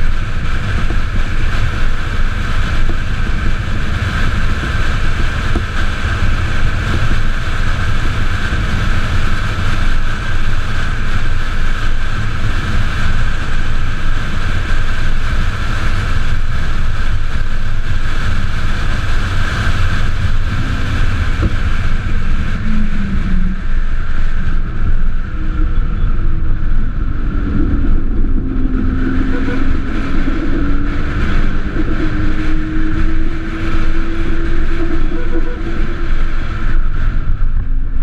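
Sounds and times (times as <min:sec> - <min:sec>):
road rumble: 0:00.0 - 0:38.0
wind rushing: 0:16.9 - 0:38.0.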